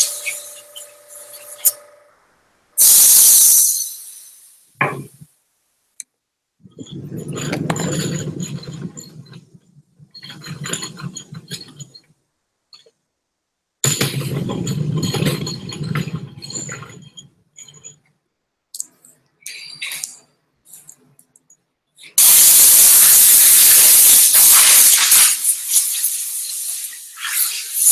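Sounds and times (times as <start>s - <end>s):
compressed air blast: 0.0s - 1.8s, 2.8s - 4.8s, 22.2s - 27.9s.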